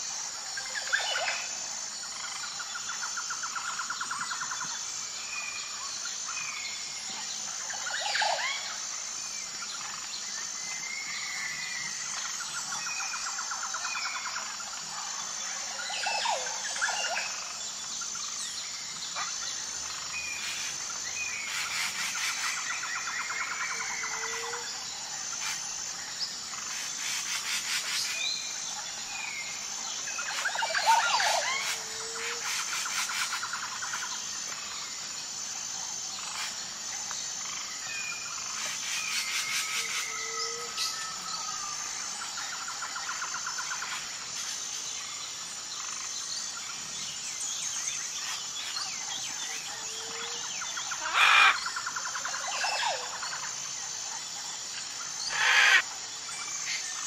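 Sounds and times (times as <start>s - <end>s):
pulsing insect drone: 0.0s - 57.0s
bird chirps and trills: 55.2s - 55.8s.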